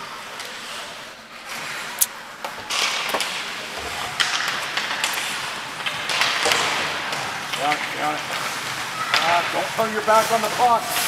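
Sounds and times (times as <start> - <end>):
hockey sticks and puck clacking: 2.4 - 11.0
skate blades scraping ice: 2.7 - 11.0.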